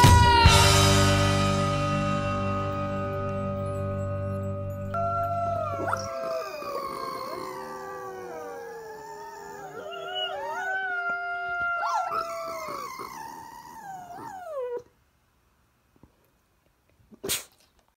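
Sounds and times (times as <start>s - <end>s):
dog howling: 4.9s - 14.9s.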